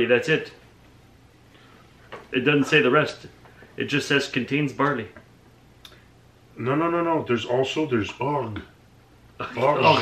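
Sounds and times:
man talking: 2.3s - 5.2s, 6.6s - 8.7s, 9.4s - 10.0s.

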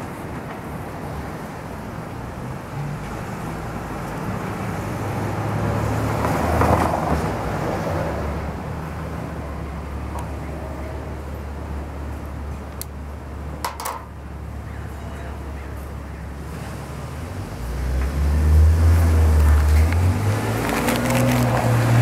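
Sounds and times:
vehicle passing: 16.4s - 22.0s.

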